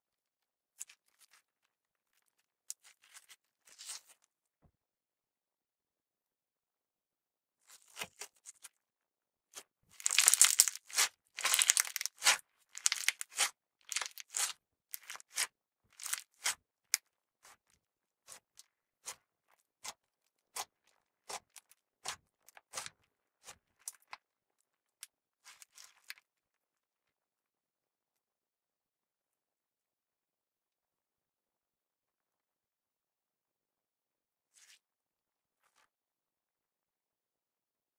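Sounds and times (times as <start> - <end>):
slime squishing: 2.7 - 4.2, 9.9 - 24.2.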